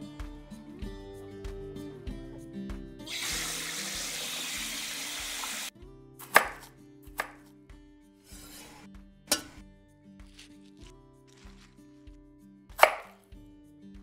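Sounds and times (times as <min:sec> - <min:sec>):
soft guitar music: 0:00.0 - 0:14.0.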